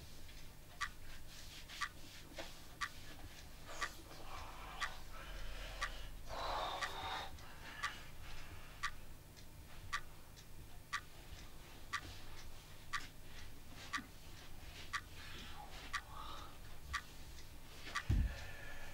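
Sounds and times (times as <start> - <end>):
clock ticking: 0.0 - 18.9.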